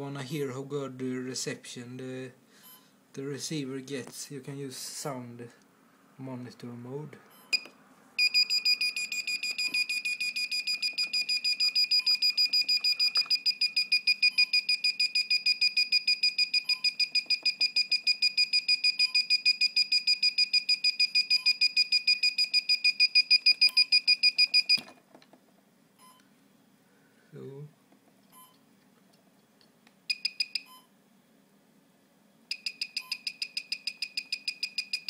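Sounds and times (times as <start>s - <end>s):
short high beeps: 8.2s - 24.8s, 30.1s - 30.9s, 32.5s - 35.0s.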